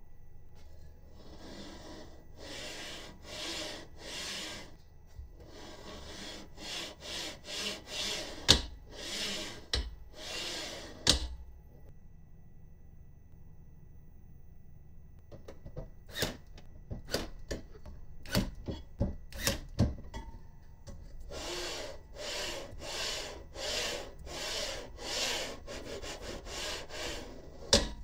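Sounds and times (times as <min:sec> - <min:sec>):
rubbing strokes: 0:01.1 - 0:04.8, 0:05.4 - 0:11.1, 0:21.3 - 0:27.8.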